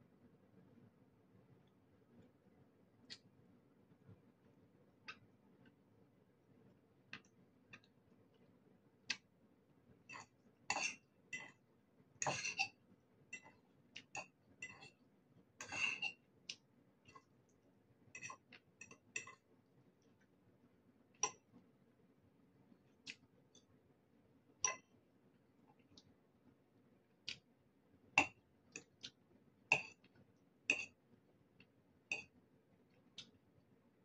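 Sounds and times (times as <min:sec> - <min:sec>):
fork clinking against ceramic bowl: 0:10.1 - 0:11.6, 0:12.2 - 0:12.7, 0:14.6 - 0:14.9, 0:15.6 - 0:16.2.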